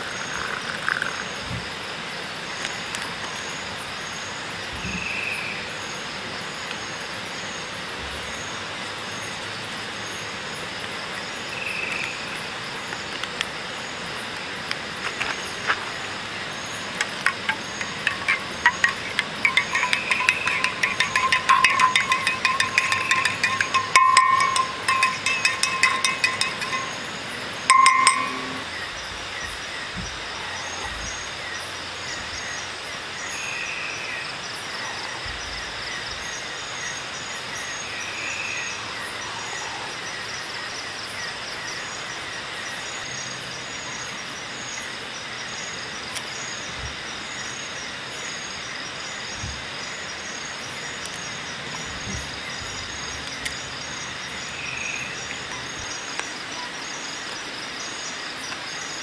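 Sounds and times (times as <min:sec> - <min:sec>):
insects chirping in pulses: 0:15.5 - 0:40.4.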